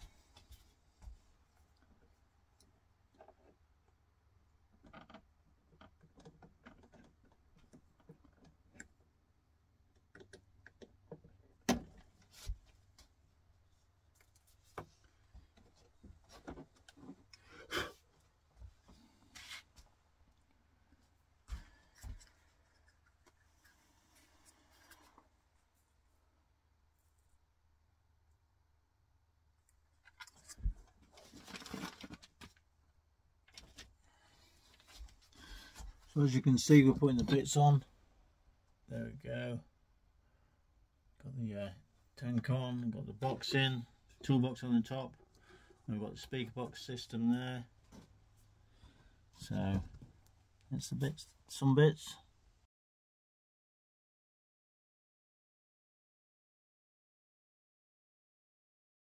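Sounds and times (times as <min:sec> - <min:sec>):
small items handled on a table: 0:18.2 - 0:26.0, 0:29.7 - 0:32.7, 0:33.4 - 0:36.2
plastic parts rustling: 0:30.0 - 0:32.6.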